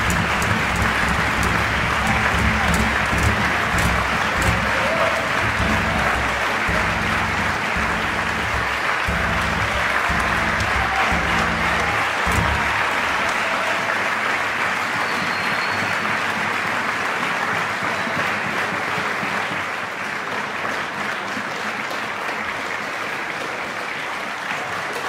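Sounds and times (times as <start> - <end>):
ensemble low notes: 0.0 - 13.3
audience applauding: 0.0 - 25.0.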